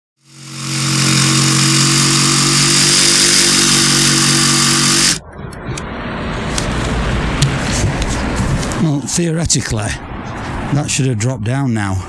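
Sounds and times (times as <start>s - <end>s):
jigsaw cutting: 0.2s - 5.2s.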